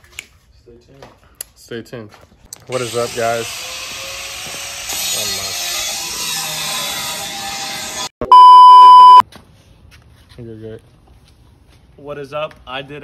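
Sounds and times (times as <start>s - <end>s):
censor bleep: 8.2s - 9.2s.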